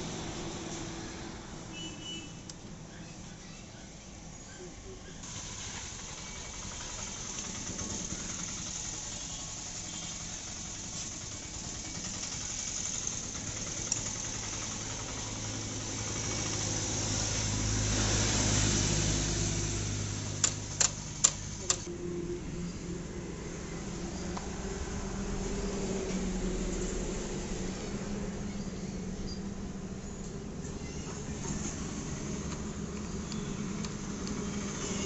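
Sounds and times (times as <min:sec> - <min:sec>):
engine running: 0:04.9 - 0:35.0
sharp clicks: 0:20.4 - 0:21.9.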